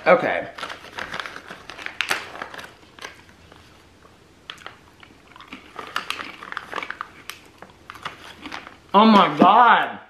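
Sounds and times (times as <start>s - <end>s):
snack bag crackling: 0.0s - 3.8s, 4.4s - 9.4s
popcorn being eaten: 4.4s - 8.9s.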